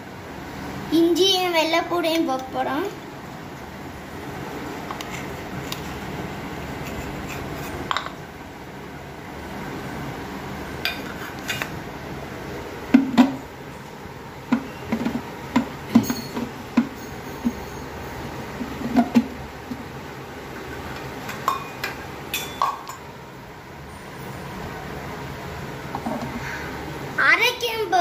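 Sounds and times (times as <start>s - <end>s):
metal bowl and jar clinking: 15.9s - 19.1s, 21.3s - 23.0s.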